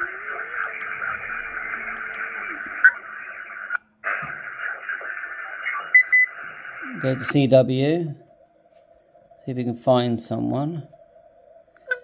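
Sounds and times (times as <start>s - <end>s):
radio static hiss: 0.0s - 8.0s.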